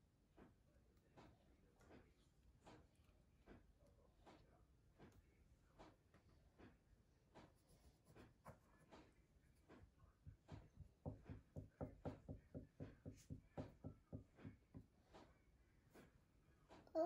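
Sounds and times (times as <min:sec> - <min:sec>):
paintbrush tapping in plastic tray: 0:09.7 - 0:15.3.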